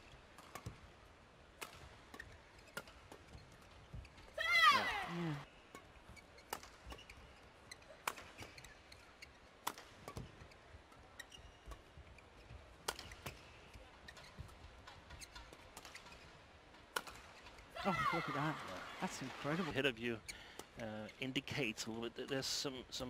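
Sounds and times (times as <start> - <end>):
court shoes squeaking: 0.0 - 22.4
badminton racket hitting shuttlecock: 9.6 - 10.3, 12.8 - 16.1.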